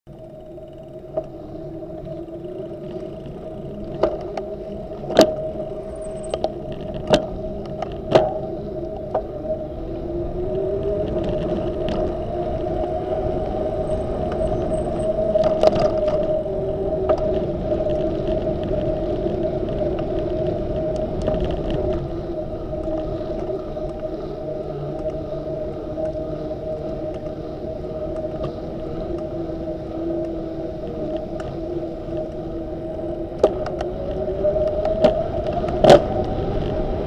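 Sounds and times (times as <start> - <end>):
bicycle knocking and rattling: 0.1 - 9.5, 10.6 - 37.0
bicycle rolling on pavement: 0.1 - 37.0
road and wind noise: 0.1 - 37.0.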